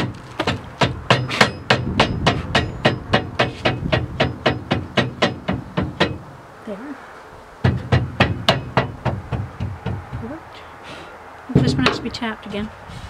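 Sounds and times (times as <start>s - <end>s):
rubber mallet striking steel: 0.4s - 6.3s, 7.6s - 10.3s.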